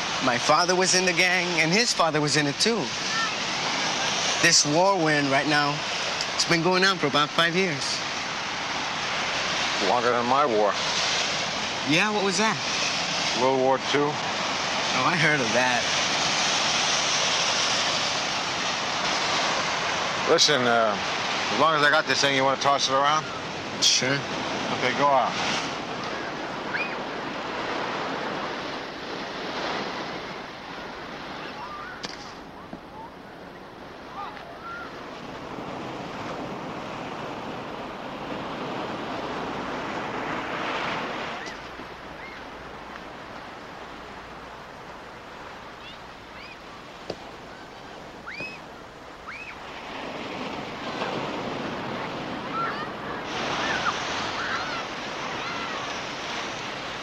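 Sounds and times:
ocean surf breaking on beach: 0:00.0 - 0:57.0
high arched bird cries: 0:26.2 - 0:27.0, 0:41.4 - 0:42.5, 0:45.8 - 0:46.7, 0:48.2 - 0:49.6.

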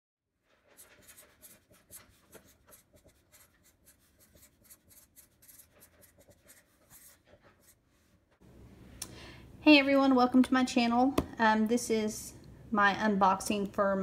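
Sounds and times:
marker scratching on paper: 0:00.6 - 0:07.8.

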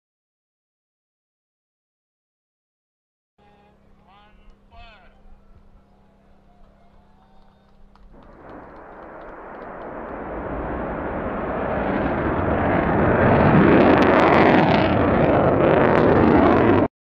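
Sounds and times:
sharp crackles: 0:07.2 - 0:16.9
rocket motor rushing: 0:07.4 - 0:16.9.

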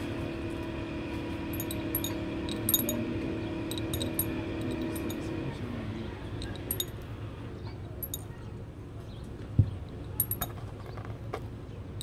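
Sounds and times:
glass bottle clinks: 0:01.6 - 0:03.0, 0:03.7 - 0:05.2, 0:06.4 - 0:07.0, 0:08.0 - 0:08.3, 0:10.2 - 0:10.6.

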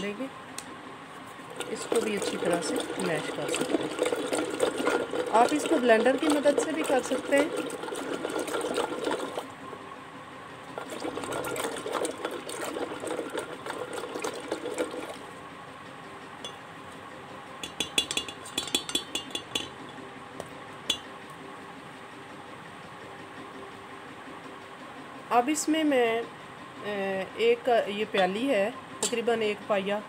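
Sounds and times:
hand blender churning liquid: 0:01.4 - 0:09.6, 0:10.7 - 0:15.4
metal clinks against steel pot: 0:17.6 - 0:19.8.

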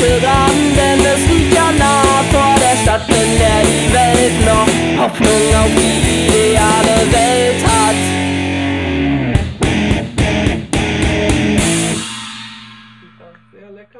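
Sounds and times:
rock band playing: 0:00.0 - 0:13.6
sharp drum hits: 0:09.4 - 0:13.7.

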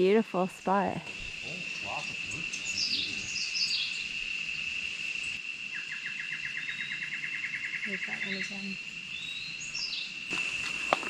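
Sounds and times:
birds calling: 0:00.0 - 0:11.0
high insect drone: 0:00.0 - 0:11.0
rapid bird trill: 0:00.6 - 0:10.9
descending bird whistles: 0:01.4 - 0:04.0.

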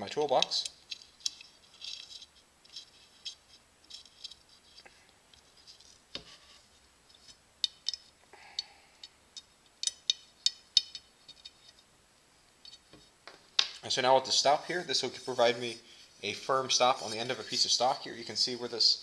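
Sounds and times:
allen wrench turning set screws: 0:00.3 - 0:04.8, 0:09.4 - 0:11.8.

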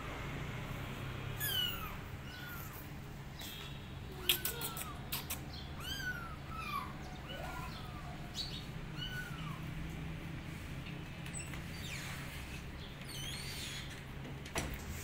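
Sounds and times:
kitten mewing: 0:01.4 - 0:02.9, 0:04.1 - 0:08.3, 0:08.9 - 0:09.6.

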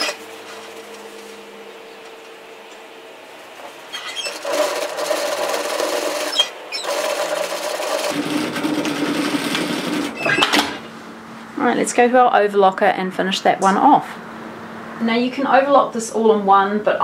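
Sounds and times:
sewing machine stitching: 0:04.3 - 0:10.8.

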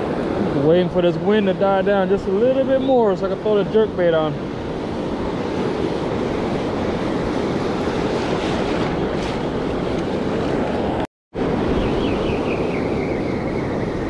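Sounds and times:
ocean surf washing on beach: 0:00.0 - 0:11.8
wind buffeting microphone: 0:00.0 - 0:14.0.

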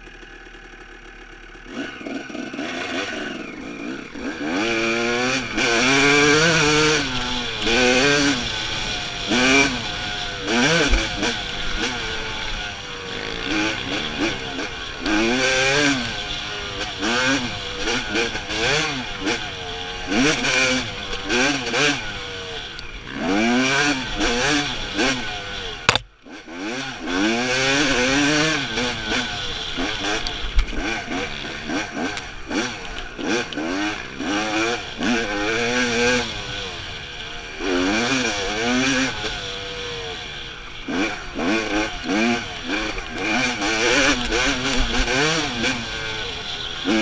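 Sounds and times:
dirt bike engine revving: 0:00.0 - 0:47.0
sharp knock: 0:25.9 - 0:26.1.

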